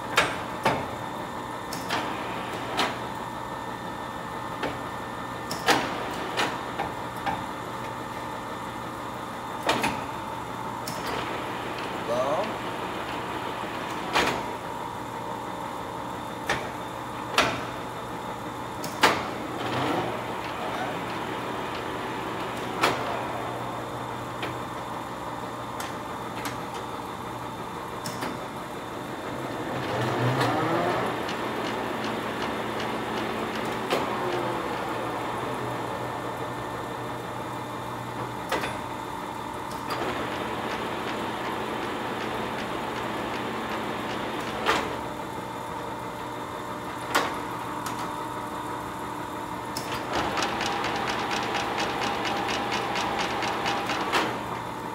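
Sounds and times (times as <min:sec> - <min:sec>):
lathe drive humming: 0:17.8 - 0:38.4, 0:39.4 - 0:47.8, 0:48.4 - 0:54.9
lathe control clicks: 0:49.7 - 0:54.6.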